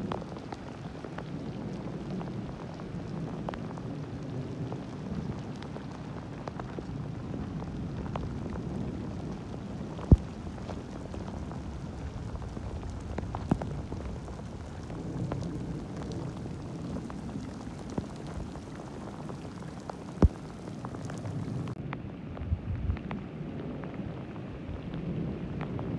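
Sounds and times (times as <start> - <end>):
heavy rain on dirt and leaves: 0.0 - 25.9
sharp taps of raindrops: 6.4 - 23.2.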